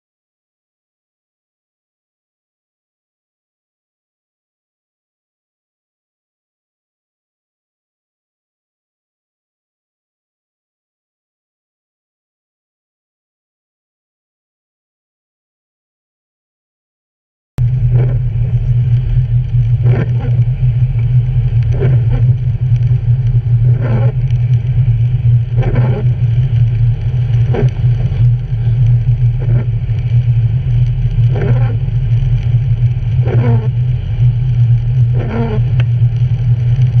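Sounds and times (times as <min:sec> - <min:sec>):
car engine and tyres on wet road: 0:17.6 - 0:37.0
windshield wipers swishing: 0:17.7 - 0:30.0, 0:30.9 - 0:33.8.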